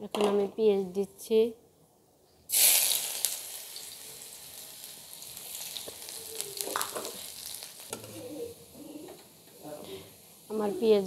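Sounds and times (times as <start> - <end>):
onion sizzling in hot oil: 2.5 - 11.0.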